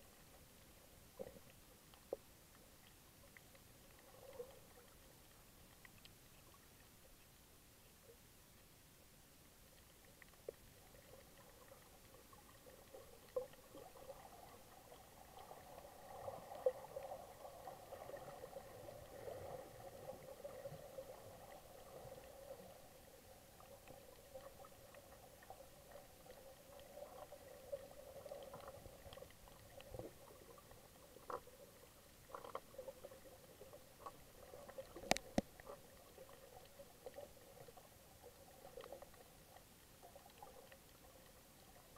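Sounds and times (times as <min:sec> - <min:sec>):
underwater murmur of water: 0:00.0 - 0:41.9
sharp underwater clicks: 0:34.0 - 0:35.8.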